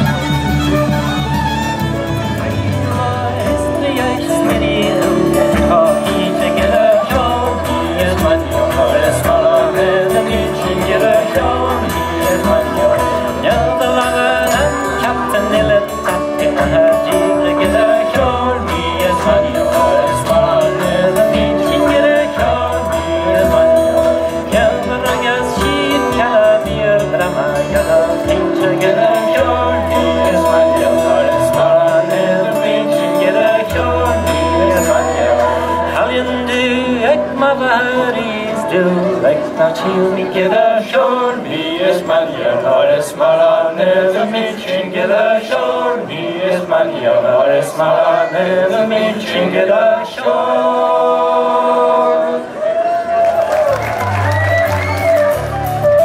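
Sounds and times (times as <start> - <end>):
bass line: 0.0 - 38.8
flute melody: 0.0 - 40.3, 52.4 - 56.0
fiddles: 0.0 - 41.4, 52.4 - 56.0
folk band playing: 0.0 - 56.0.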